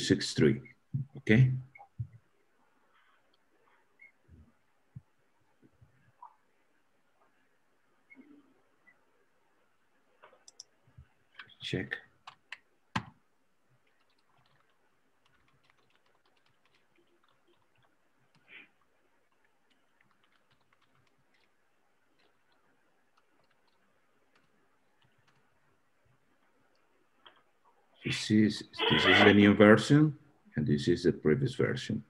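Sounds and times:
typing on keyboard: 13.8s - 18.5s, 19.3s - 21.6s, 22.2s - 25.5s.

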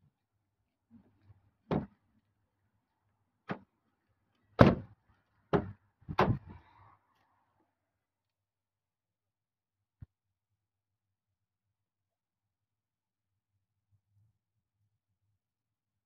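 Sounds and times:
sharp knocks and thumps: 1.7s - 2.0s, 4.6s - 4.9s, 5.5s - 6.6s.

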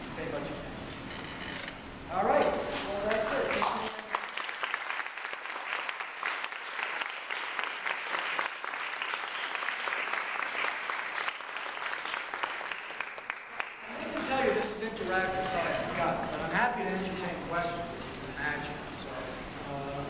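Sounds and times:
audience applauding: 3.0s - 16.2s.

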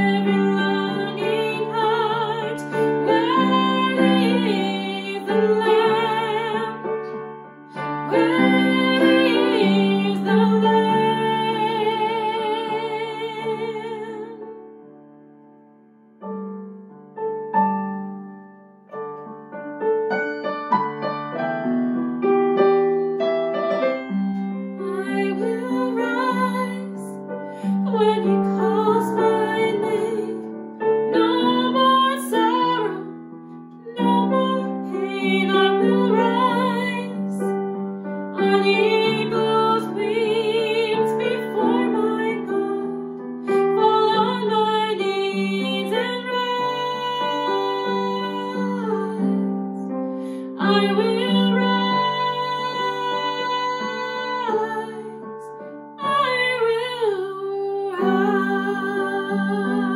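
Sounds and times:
woman singing worship song: 0.0s - 6.8s, 7.8s - 14.4s, 24.8s - 33.0s, 33.9s - 37.6s, 38.3s - 49.5s, 50.3s - 55.2s, 56.0s - 59.9s
piano accompaniment: 0.0s - 59.9s.

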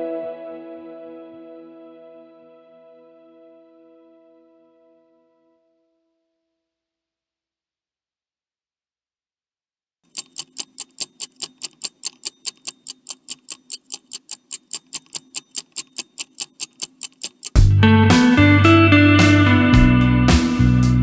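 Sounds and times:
rapid even ticking: 10.1s - 17.7s
loud guitar music: 17.6s - 21.0s.

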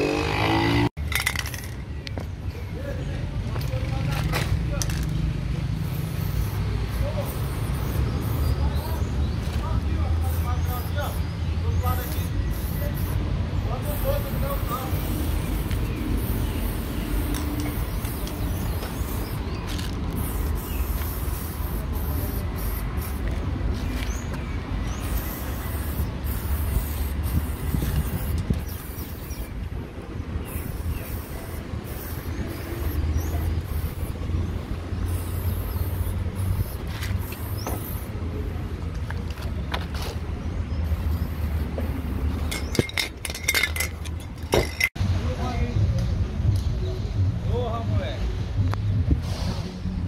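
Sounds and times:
traffic rumble: 0.0s - 50.0s
spray paint can hissing: 3.8s - 29.7s, 30.4s - 44.9s.

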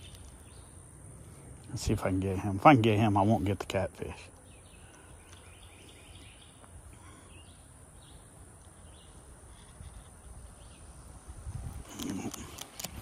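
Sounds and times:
small bird chirping: 0.0s - 0.9s, 4.3s - 11.0s
wind rumble on microphone: 9.8s - 13.0s.

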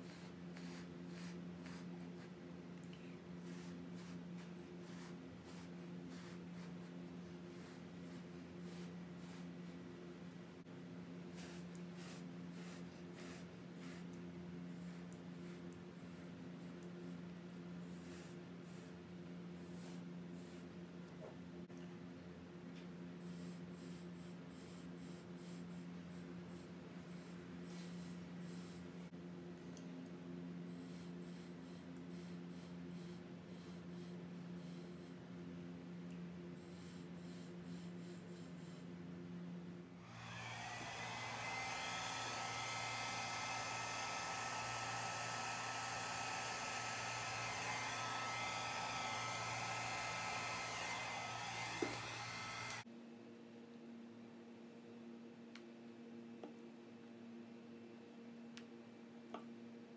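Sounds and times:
steady low hum: 0.0s - 59.9s
hair dryer running: 40.0s - 52.9s.

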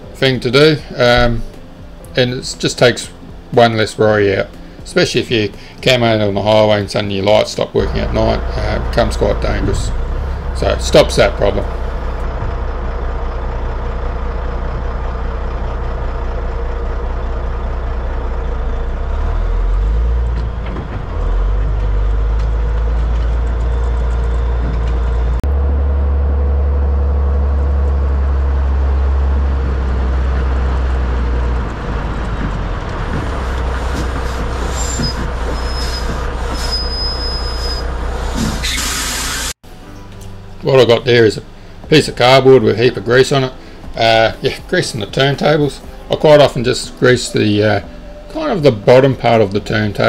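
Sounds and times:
truck diesel engine pulling away: 7.6s - 39.6s.

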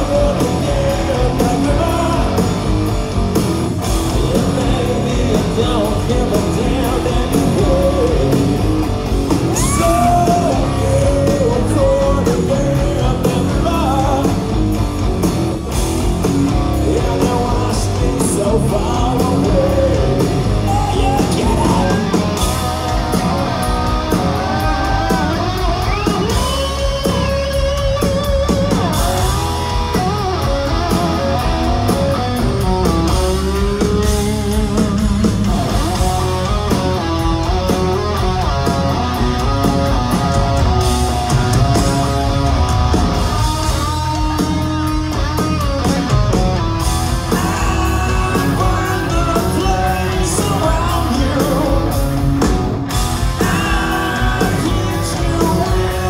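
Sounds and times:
bass and drums: 0.0s - 56.0s
distorted electric guitar lead: 0.0s - 56.0s.

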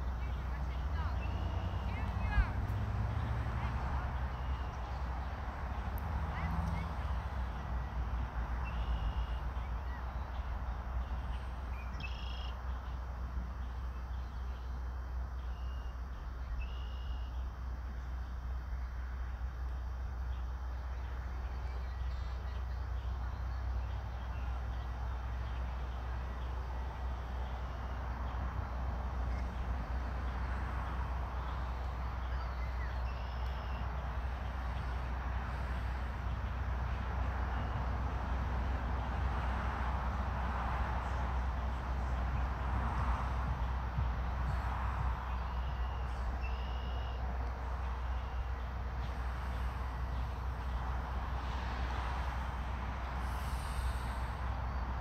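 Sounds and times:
faint high chirps: 15.4s - 17.5s, 32.2s - 33.9s, 45.3s - 47.2s
wind rumble on microphone: 17.6s - 46.6s
hiss: 53.1s - 54.7s.

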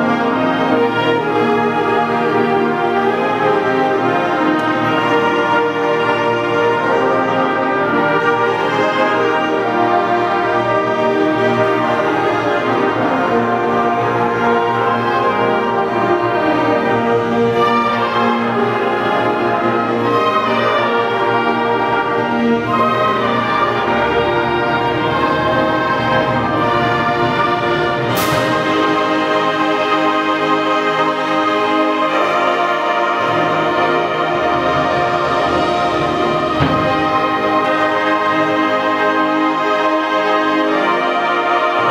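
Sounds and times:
concert band playing chords: 31.7s - 39.0s.

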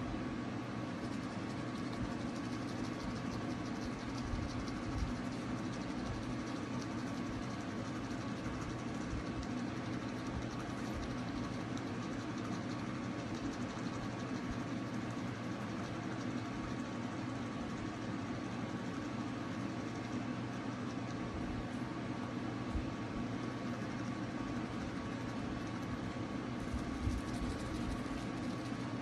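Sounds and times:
electric toothbrush buzzing: 26.6s - 28.8s.

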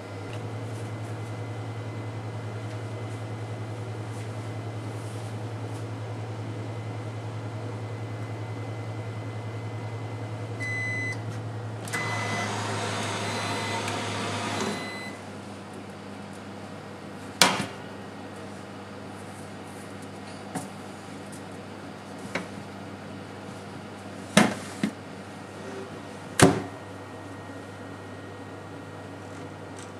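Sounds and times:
oven humming: 0.0s - 29.9s
oven beeps: 8.0s - 11.3s, 11.9s - 15.3s.

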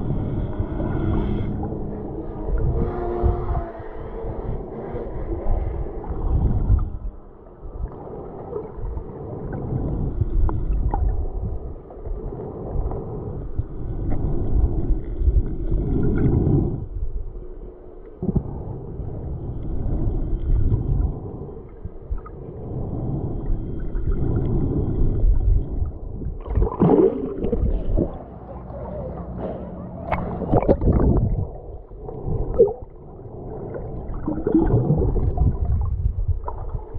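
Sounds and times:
underwater rushing water: 0.0s - 28.6s, 30.0s - 36.9s
water splashing: 26.3s - 28.4s, 30.0s - 36.9s.

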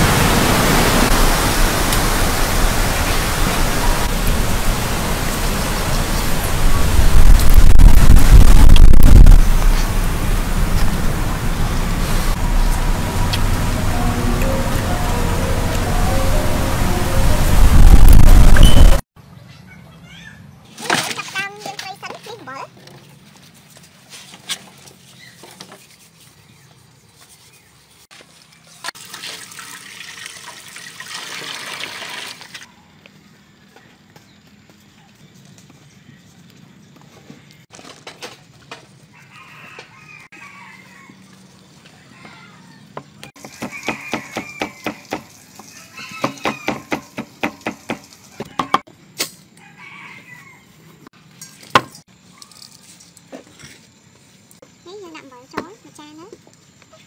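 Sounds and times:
water sloshing and trickling: 28.1s - 32.7s.

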